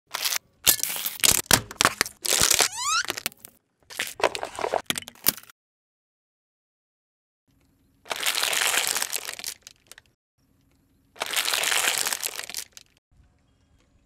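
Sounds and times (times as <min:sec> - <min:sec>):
tyre crushing plastic and cups: 0:00.2 - 0:05.5
short rising squeak: 0:02.5 - 0:03.2.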